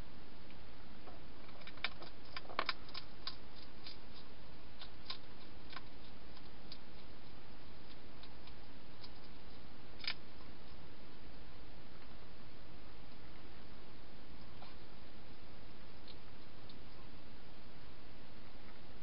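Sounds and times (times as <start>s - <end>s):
steady background hiss: 0.0s - 19.0s
hedgehog crunching dry food: 1.4s - 10.9s.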